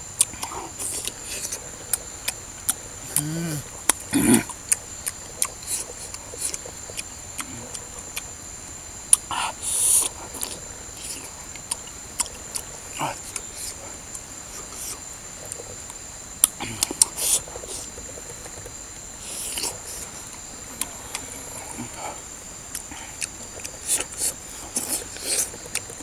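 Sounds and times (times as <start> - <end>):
man chewing with lip smacks: 0.1 - 26.0
man saying ooh: 3.1 - 3.7.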